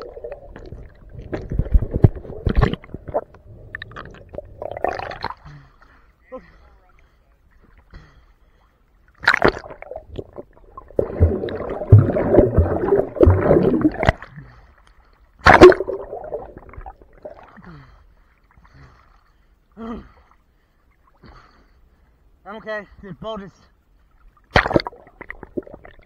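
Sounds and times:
sharp water splash: 0:09.2 - 0:09.9, 0:11.0 - 0:14.2, 0:15.4 - 0:16.5, 0:24.5 - 0:25.4
rushing gurgling water: 0:09.2 - 0:14.3.

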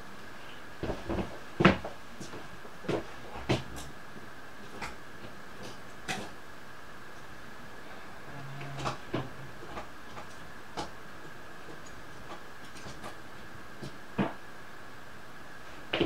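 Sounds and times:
faint steady high tone: 0:08.0 - 0:09.5.

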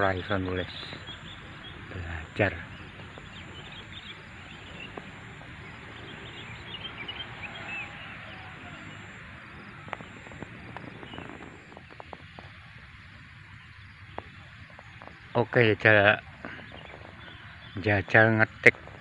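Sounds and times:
birds chirping: 0:00.0 - 0:19.0
open field background noise: 0:00.0 - 0:19.0
faint sharp clicks: 0:09.8 - 0:12.6.

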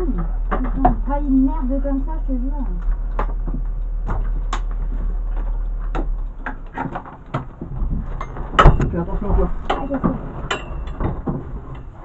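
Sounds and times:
low hum: 0:00.0 - 0:12.0
loud thump: 0:07.7 - 0:09.8.

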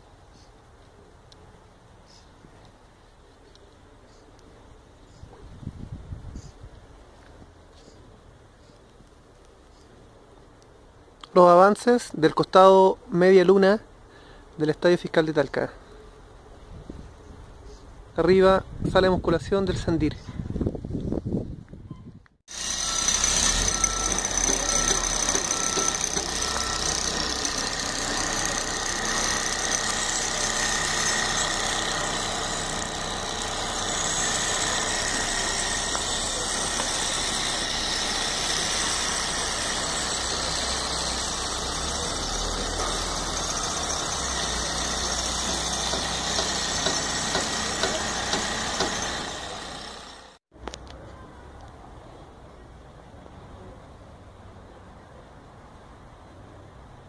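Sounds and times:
construction machinery whining: 0:22.5 - 0:50.4
short beeps: 0:22.8 - 0:27.7.

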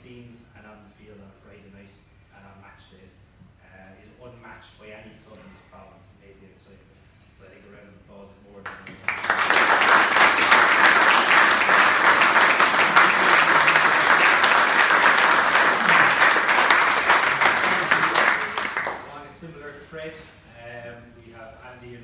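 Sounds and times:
audience applauding: 0:08.7 - 0:19.2.

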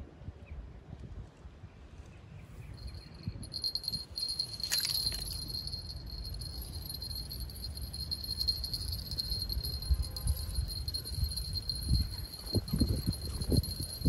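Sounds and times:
wind rumble on microphone: 0:00.0 - 0:14.0
fishing rod bell jingling: 0:02.8 - 0:14.0.

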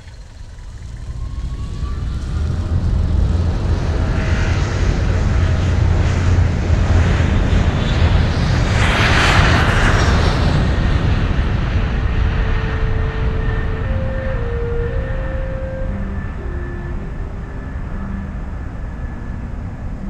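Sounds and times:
faint rising whine: 0:00.0 - 0:20.0
jet engines rumbling: 0:00.0 - 0:20.0.

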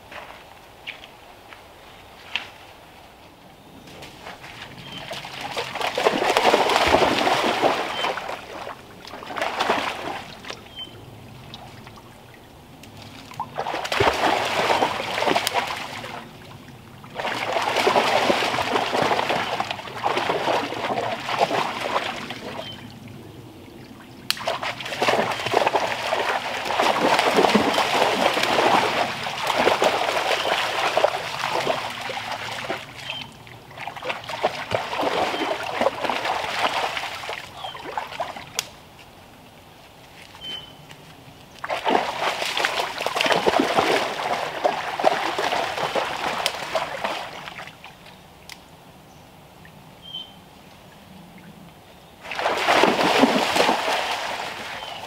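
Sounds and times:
dogs splashing through water: 0:03.9 - 0:23.2, 0:24.2 - 0:38.7, 0:40.2 - 0:48.1, 0:52.2 - 0:55.0.

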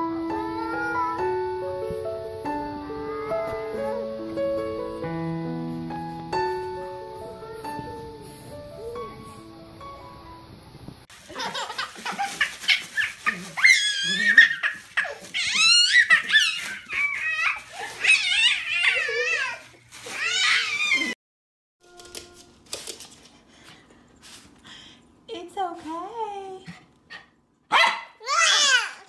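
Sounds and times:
baby laughing and squealing: 0:11.2 - 0:21.2.

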